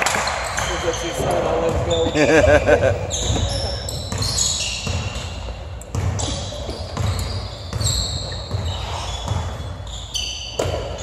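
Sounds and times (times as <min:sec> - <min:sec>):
basketball dribbling on hardwood: 0:01.3 - 0:01.9, 0:03.2 - 0:09.8
short high squeaks: 0:06.2 - 0:11.0.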